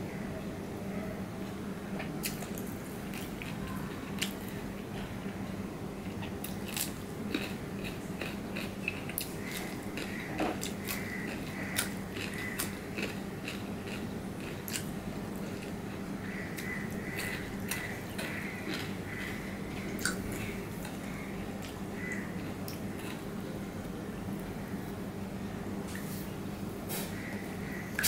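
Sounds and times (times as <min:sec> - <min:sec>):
chewing crisp cucumber: 0:02.0 - 0:04.5, 0:06.1 - 0:21.8, 0:22.4 - 0:23.3.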